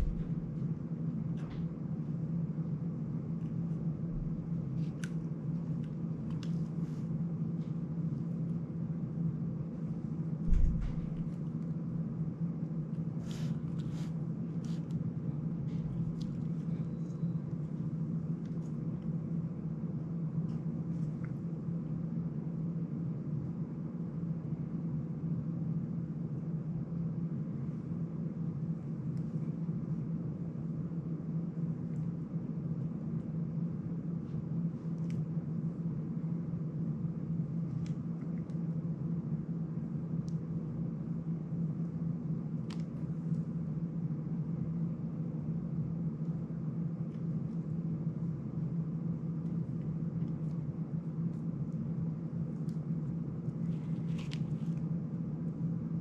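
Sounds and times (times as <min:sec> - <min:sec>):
low room hum: 0:00.0 - 0:56.0
low thump: 0:10.4 - 0:11.3.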